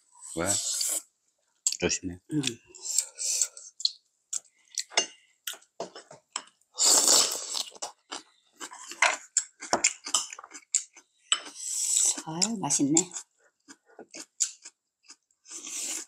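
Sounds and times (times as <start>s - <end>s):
chewing and crunching crab shell: 7.3s - 16.0s.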